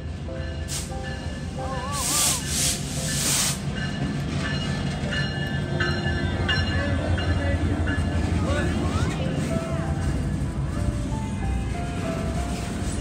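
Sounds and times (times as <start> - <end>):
train rumbling past: 0.0 - 13.0.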